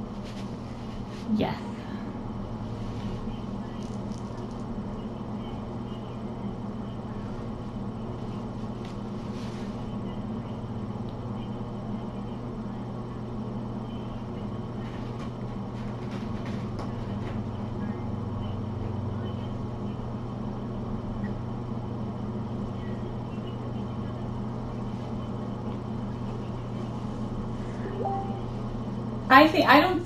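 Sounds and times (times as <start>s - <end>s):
steady low hum: 0.0s - 30.0s
faint clicks and rustles: 2.8s - 5.0s.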